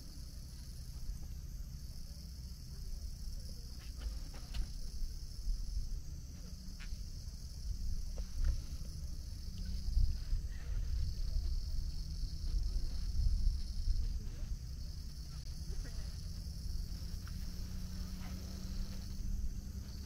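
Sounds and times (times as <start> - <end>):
insects droning: 0.0 - 20.0
low rumble: 4.9 - 20.0.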